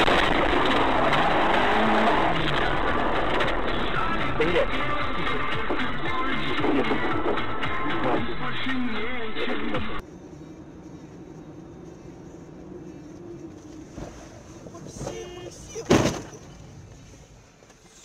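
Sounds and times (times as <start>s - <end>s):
car engine humming: 0.0s - 18.0s
music: 3.0s - 10.0s.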